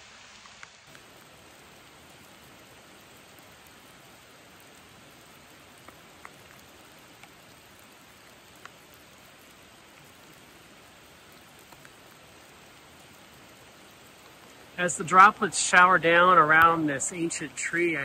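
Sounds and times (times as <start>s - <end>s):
steady rain: 0.0s - 18.0s.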